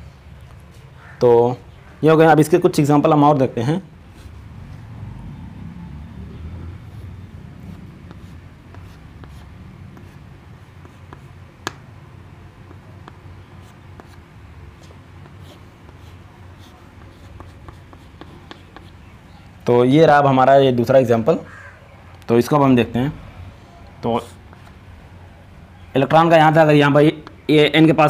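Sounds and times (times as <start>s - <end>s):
low room rumble: 3.4s - 20.0s
chalk scratching on chalkboard: 6.8s - 11.8s, 12.6s - 19.2s.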